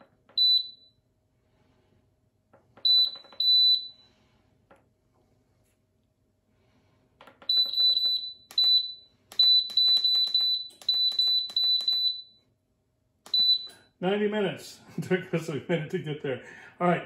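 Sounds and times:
short high beeps: 13.3s - 13.9s.

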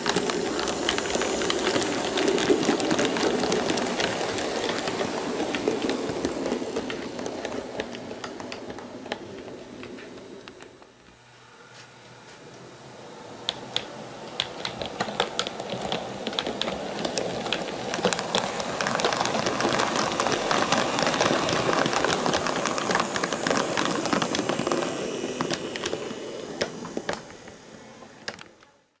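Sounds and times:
wheels clicking over rail joints: 0.0s - 10.9s, 13.4s - 28.8s
model train rolling past: 0.0s - 29.0s.

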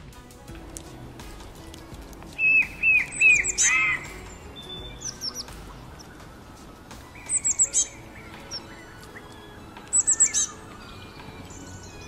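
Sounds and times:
small songbirds chirping: 0.0s - 12.0s.

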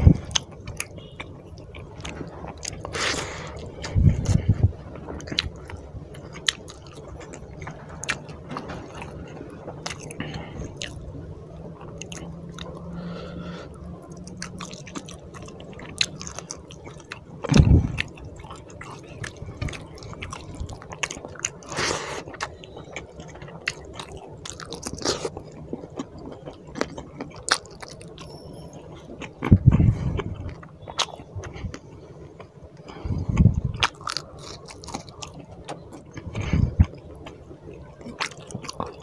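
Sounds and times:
chewing with wet mouth clicks: 0.1s - 11.1s, 11.8s - 13.1s, 14.0s - 39.0s
heavy low thumps: 17.5s - 18.0s.

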